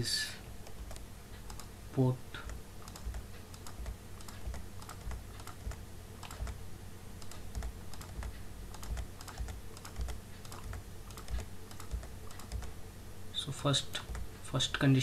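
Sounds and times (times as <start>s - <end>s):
faint steady hum: 0.0s - 15.0s
keyboard keys tapping: 0.6s - 1.7s, 2.4s - 12.8s, 13.9s - 14.4s.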